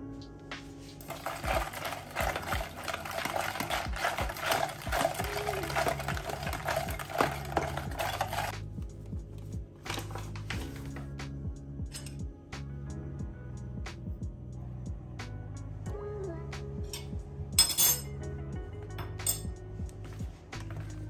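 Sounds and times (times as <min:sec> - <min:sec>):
spoon clattering in plastic tub: 0:01.0 - 0:08.5, 0:17.0 - 0:18.0, 0:19.0 - 0:19.5
flour pouring: 0:01.0 - 0:08.6.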